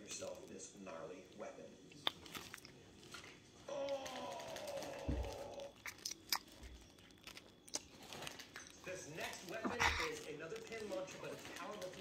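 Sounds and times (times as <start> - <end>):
wet mouth clicks and smacks: 1.9 - 2.8, 5.8 - 7.9.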